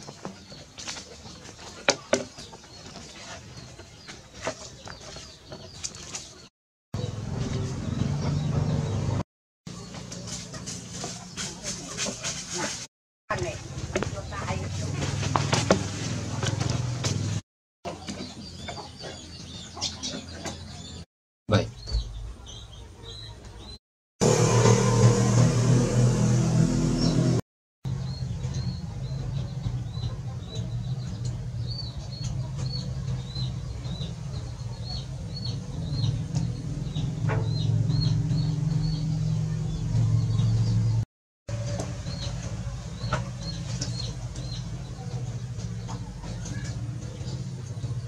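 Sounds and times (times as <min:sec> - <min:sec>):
chickens clucking: 0:00.0 - 0:09.0, 0:17.9 - 0:21.0, 0:28.4 - 0:40.5, 0:41.5 - 0:48.0.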